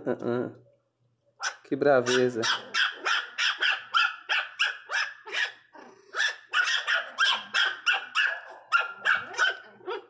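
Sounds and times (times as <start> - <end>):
puppies yapping: 1.4 - 10.0.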